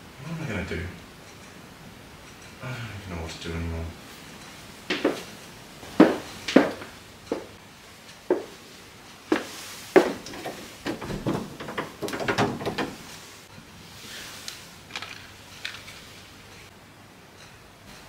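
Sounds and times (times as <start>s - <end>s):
sharp knocks: 4.9s - 5.3s, 6.0s - 7.5s, 9.3s - 13.2s
gas cooktop knobs clicking: 10.0s - 13.2s.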